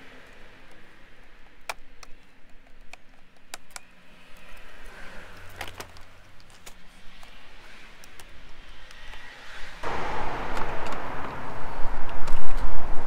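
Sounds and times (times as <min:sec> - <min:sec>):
plastic clips clicking: 0:00.1 - 0:09.3.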